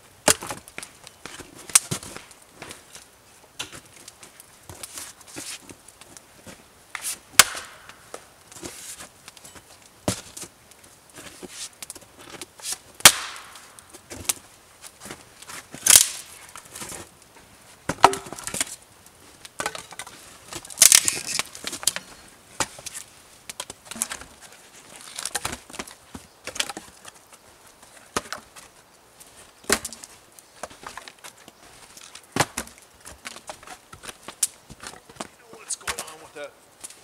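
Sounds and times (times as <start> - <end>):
axe chopping wood: 0.2 - 0.6, 7.4 - 7.9, 13.0 - 13.6, 17.9 - 18.7
wood pieces clattering: 19.6 - 23.0.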